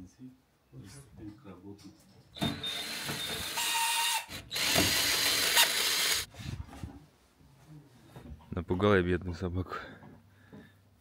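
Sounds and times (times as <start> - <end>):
cordless drill motor whining: 2.4 - 6.3.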